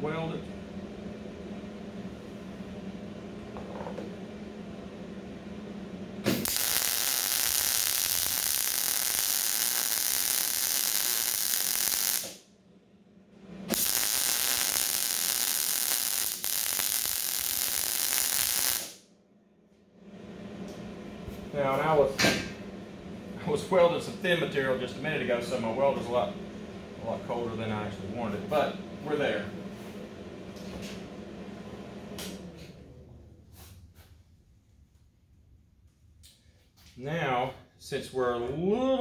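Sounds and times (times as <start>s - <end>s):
arc welding sizzle: 6.2s - 12.5s, 13.7s - 19.0s.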